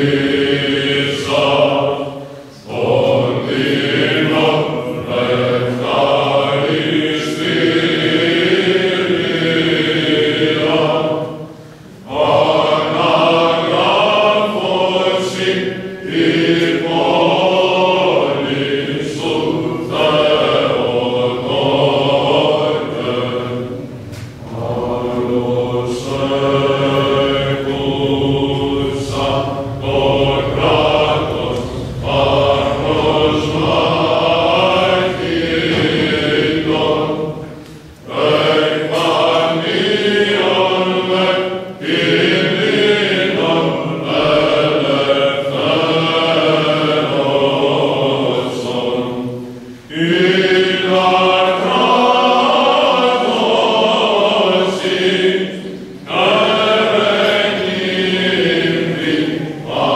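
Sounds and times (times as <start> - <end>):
group of voices chanting: 0.0 - 59.9.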